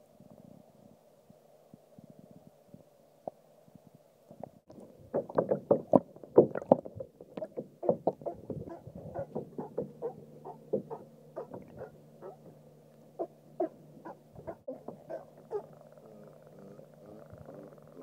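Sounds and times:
low steady hum: 0.0 - 18.0
water splashing around kayak: 4.7 - 8.6.

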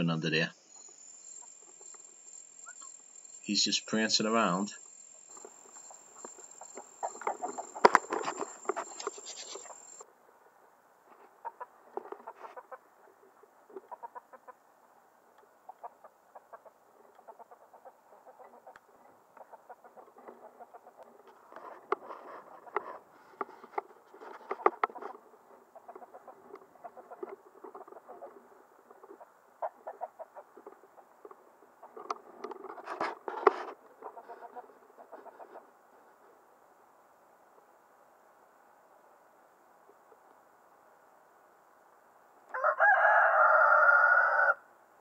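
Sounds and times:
chickens clucking: 5.3 - 10.0, 11.3 - 14.6, 15.6 - 23.8, 24.4 - 35.8.

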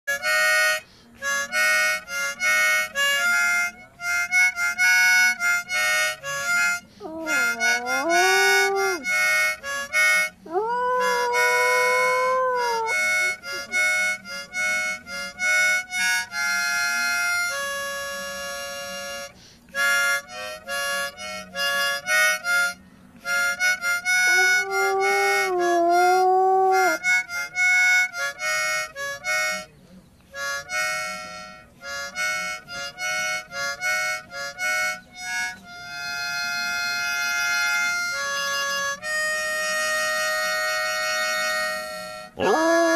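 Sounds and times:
harmonica chords: 0.1 - 42.9
dog howling: 7.0 - 9.2, 10.4 - 13.1, 24.3 - 27.1, 42.4 - 42.9.

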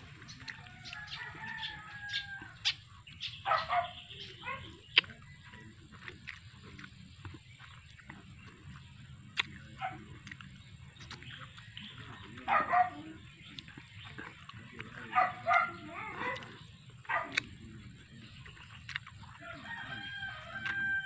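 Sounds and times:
dog barking: 3.4 - 4.8, 9.7 - 10.4, 12.4 - 13.2, 14.9 - 17.5.

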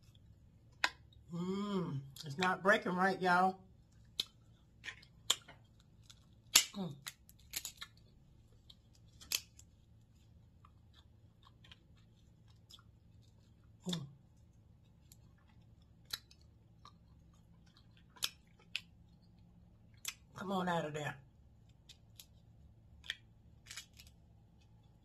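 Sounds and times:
crab shells cracking: 4.1 - 9.7, 15.0 - 20.3, 21.7 - 24.9.

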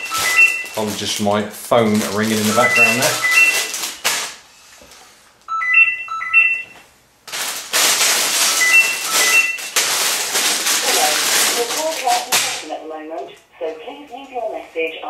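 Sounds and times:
phone ringing with electronic beeps: 0.0 - 0.8, 2.4 - 3.8, 5.5 - 6.8, 8.6 - 9.7
plastic bags rustling: 0.0 - 5.3, 7.2 - 12.8.

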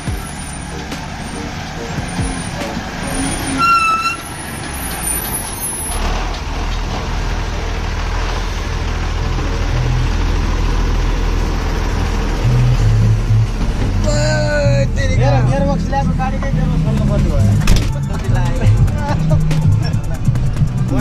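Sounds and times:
truck brakes squealing: 0.0 - 6.3
diesel engine rumbling: 0.0 - 21.0.

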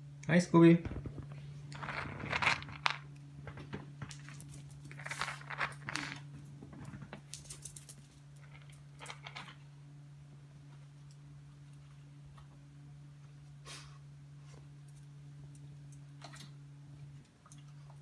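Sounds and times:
steady low hum: 0.0 - 18.0
rustling: 0.9 - 3.0.

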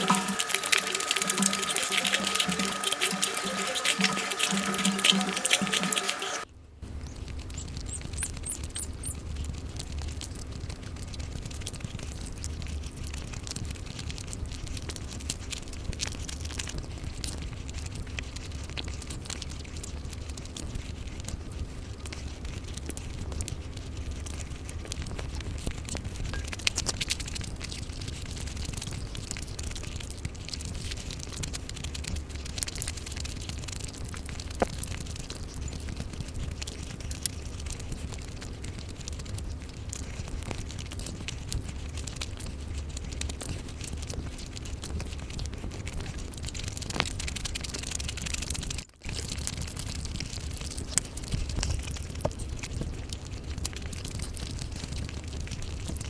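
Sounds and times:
food tearing crackles: 0.0 - 6.4, 7.1 - 56.0
steady low hum: 0.0 - 12.2
chewing and wet mouth noises: 0.0 - 56.0.

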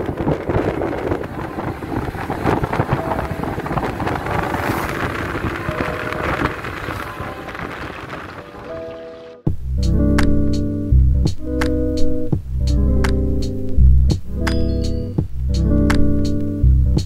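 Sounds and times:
wind buffeting microphone: 0.0 - 9.4
vehicle road and engine noise: 0.0 - 10.0.

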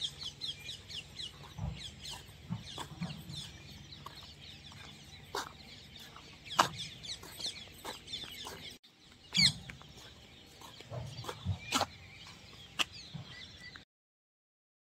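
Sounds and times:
birds chirping: 0.0 - 13.8.

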